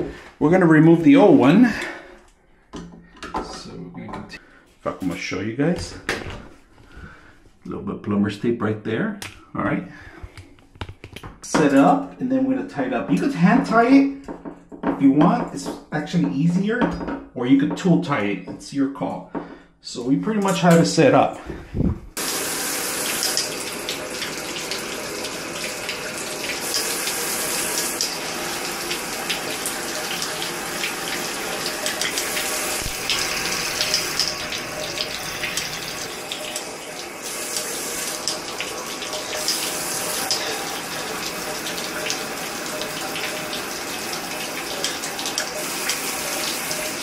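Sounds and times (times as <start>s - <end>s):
shower spraying on glass and tile: 22.2s - 47.0s.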